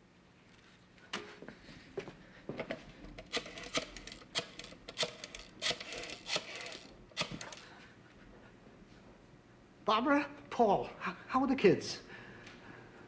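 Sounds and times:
desk telephone being dialled: 3.3 - 7.6.

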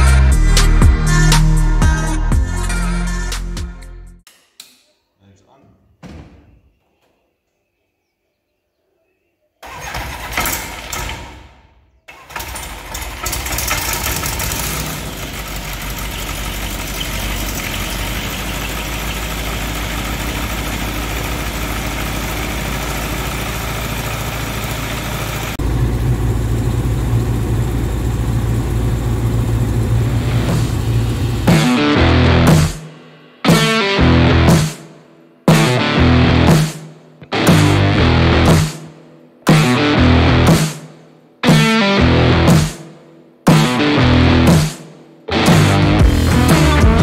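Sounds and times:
starter motor cranking: 12.1 - 25.6
aircraft engine running: 12.3 - 32.7.

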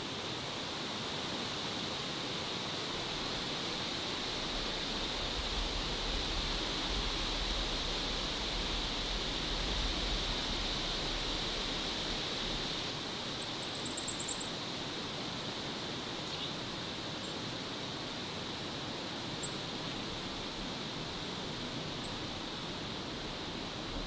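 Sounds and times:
steady forest hiss: 0.0 - 24.0
small bird chirping: 16.0 - 16.5.

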